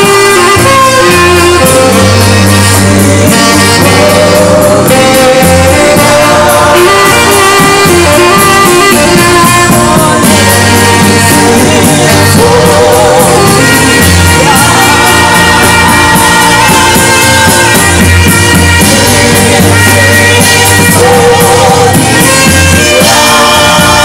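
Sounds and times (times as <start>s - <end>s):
band with steady beat: 0.0s - 24.0s
heavy bass: 0.0s - 24.0s
people singing worship music: 0.0s - 24.0s
saxophone: 0.0s - 24.0s.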